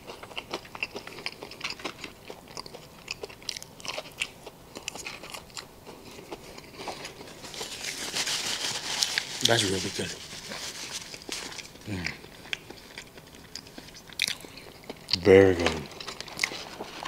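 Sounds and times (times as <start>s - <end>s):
person chewing crunchy food: 0.0s - 9.4s, 10.2s - 17.0s.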